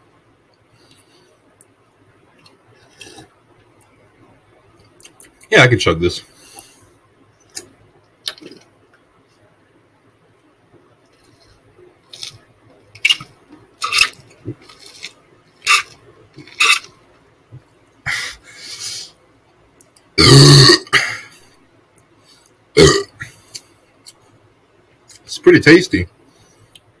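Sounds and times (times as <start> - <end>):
man gulping a drink: 8.2 - 8.7
loud burp: 20.2 - 21.2, 22.8 - 23.2.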